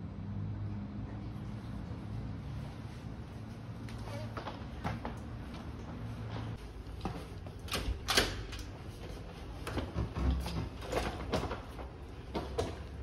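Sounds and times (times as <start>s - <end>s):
wheeled suitcase rolling: 6.1s - 13.0s.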